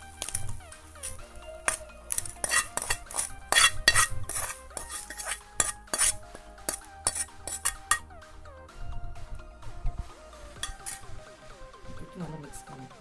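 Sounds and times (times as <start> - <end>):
metal utensil scraping a frying pan: 0.0 - 8.2, 10.6 - 11.2.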